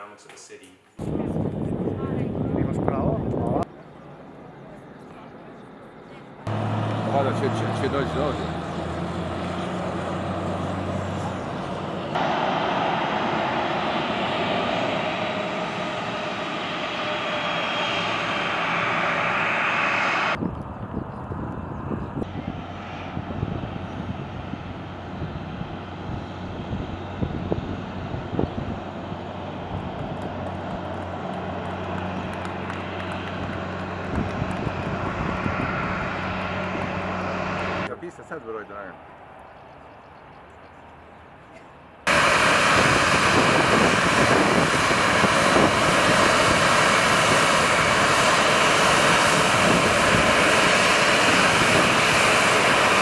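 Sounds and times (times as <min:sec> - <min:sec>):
jet engines rushing: 0:01.0 - 0:39.5, 0:42.0 - 0:53.0
low hum: 0:06.4 - 0:37.9.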